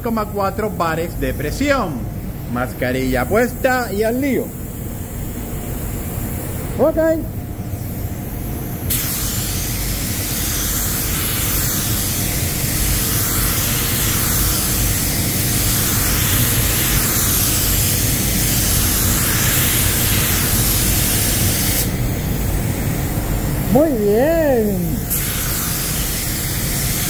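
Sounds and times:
spray gun hissing: 3.0s - 5.4s, 7.7s - 27.0s.

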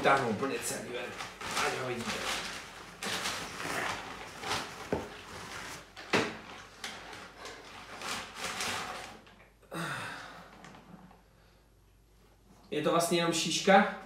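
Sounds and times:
plastic bag crinkling: 0.0s - 9.4s.

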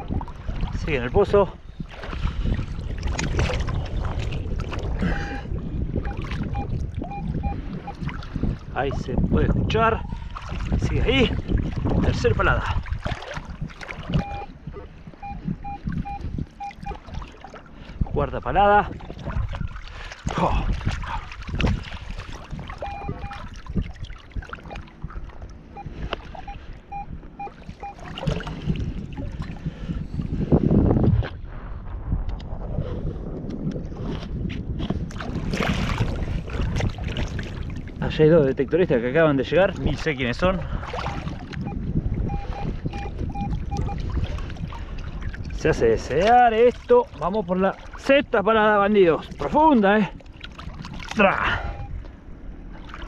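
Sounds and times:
water sloshing and splashing: 0.0s - 31.4s, 33.4s - 53.0s
metal detector beeps: 6.1s - 8.0s, 14.1s - 14.6s, 15.2s - 17.0s, 22.8s - 23.5s, 25.8s - 28.1s, 41.6s - 44.1s, 51.4s - 52.0s.

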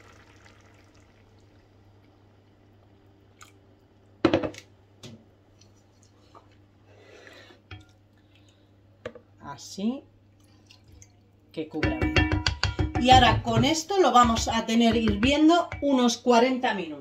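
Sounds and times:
jug knocking on stone counter: 11.8s - 16.2s
spoon tapping pot: 11.8s - 16.2s.

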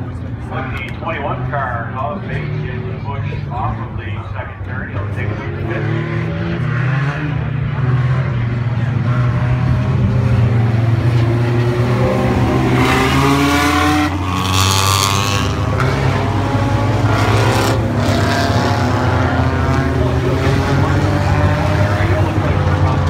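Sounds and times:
race car engines droning: 0.0s - 23.0s
race car accelerating past: 5.8s - 23.0s.

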